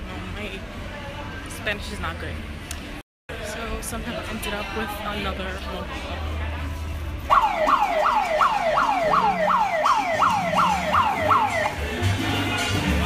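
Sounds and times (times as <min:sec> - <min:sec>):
electronic siren wailing: 0:07.3 - 0:11.8.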